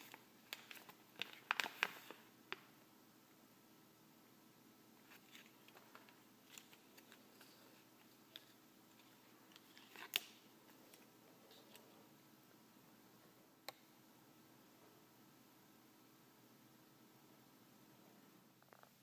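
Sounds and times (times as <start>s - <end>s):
soft rustling of card: 0.0s - 2.7s, 5.0s - 12.2s.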